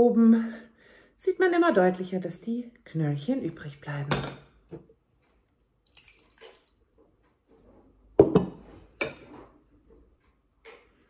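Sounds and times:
soft plops and drips: 5.2s - 7.6s.

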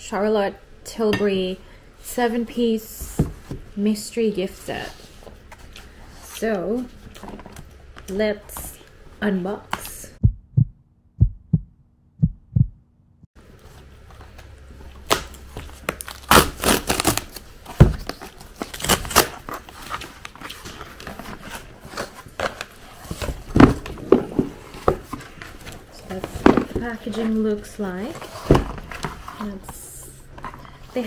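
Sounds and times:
short low thuds: 10.2s - 12.9s
cardboard rustling and tearing: 14.9s - 26.2s.

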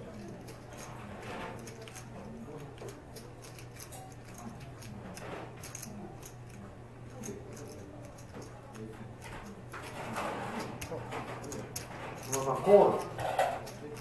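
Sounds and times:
poker chips clicking: 1.6s - 5.0s.

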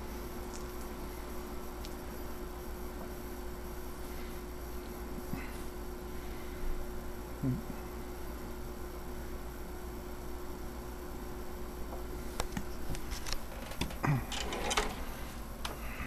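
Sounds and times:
computer fan hum: 0.0s - 16.0s
clicks and knocks: 13.2s - 15.0s.

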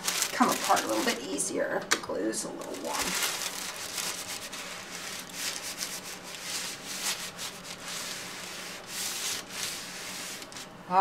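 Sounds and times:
iron sliding over fabric: 4.4s - 10.7s.

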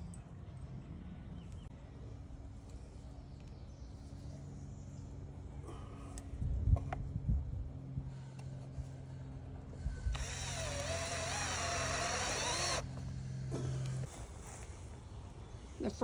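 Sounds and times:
cordless drill whining into wood: 10.1s - 12.9s.

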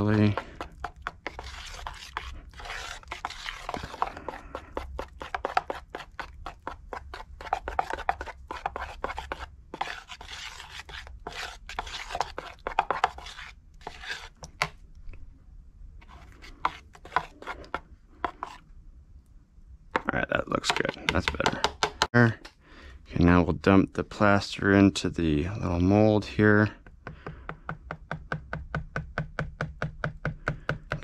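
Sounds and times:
spoon scraping glass bowl: 0.0s - 14.6s, 16.0s - 18.6s.

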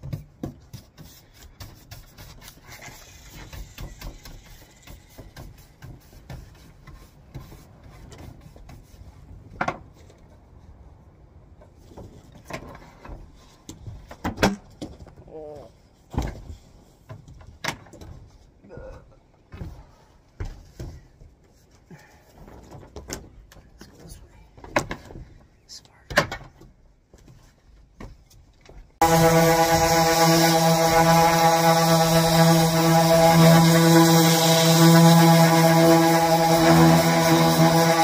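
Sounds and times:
brush sweeping dust on wood: 29.0s - 38.0s.

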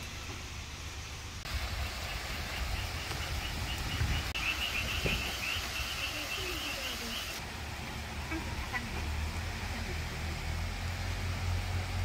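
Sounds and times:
steady hiss: 0.0s - 12.0s
wind rumble on microphone: 1.5s - 5.9s.

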